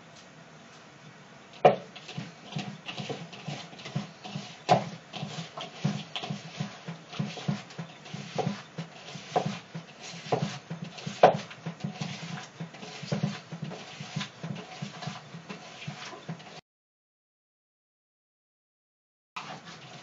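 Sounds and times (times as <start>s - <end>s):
hands kneading cucumbers in bowl: 1.9s - 16.6s.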